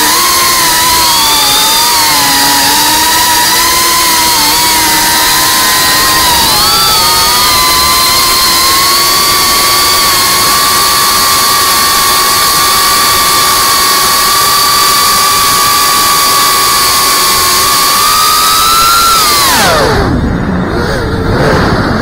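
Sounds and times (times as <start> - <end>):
drone propellers whining: 0.0 - 22.0
rushing noise: 19.3 - 22.0.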